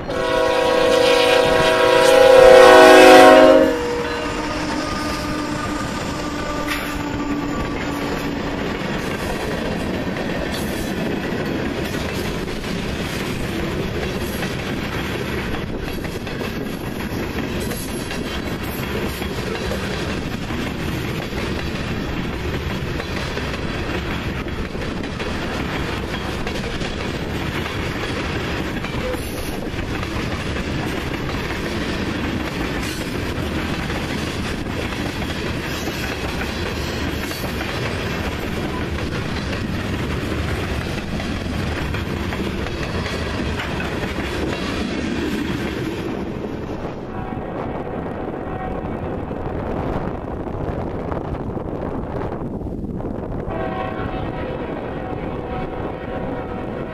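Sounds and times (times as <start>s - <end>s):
wheel-on-rail noise: 3.6s - 47.4s
clickety-clack over rail joints: 4.8s - 47.3s.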